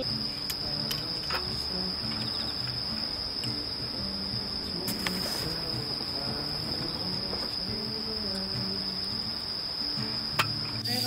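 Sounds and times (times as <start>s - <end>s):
crickets chirping: 0.0s - 11.0s
soft background music: 0.0s - 11.0s.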